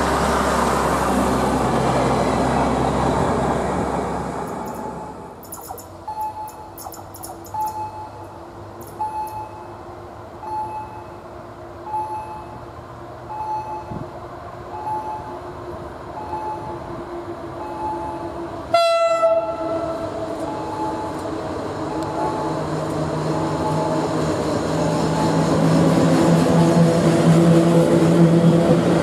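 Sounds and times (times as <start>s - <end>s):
electric locomotive running: 3.6s - 9.6s, 16.1s - 29.0s
short high beeps: 4.7s - 8.2s, 8.9s - 9.7s
locomotive horn blast: 18.0s - 20.0s.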